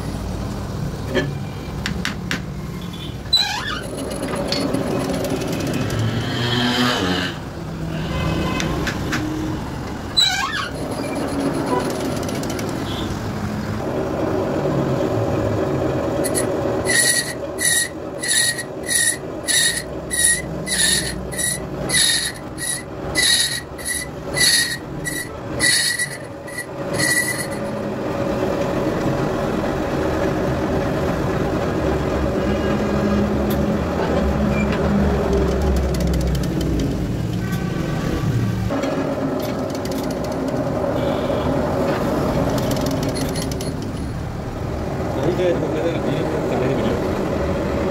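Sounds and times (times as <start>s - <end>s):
cutting tool squealing: 10.2s - 12.1s, 16.2s - 27.8s, 42.7s - 44.2s.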